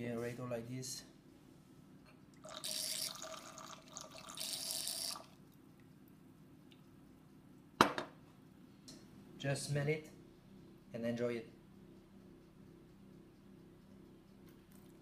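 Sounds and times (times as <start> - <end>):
wine pouring through aerator: 2.4 - 5.4
glass bottle knocking on table: 7.8 - 8.1.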